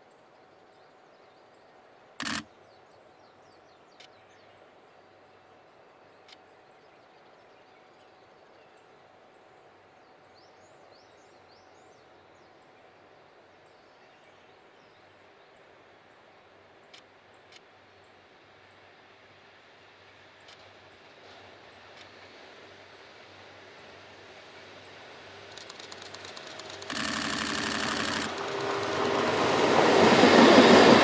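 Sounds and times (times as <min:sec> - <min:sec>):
small clicks: 0:02.2 - 0:02.4, 0:25.5 - 0:29.8.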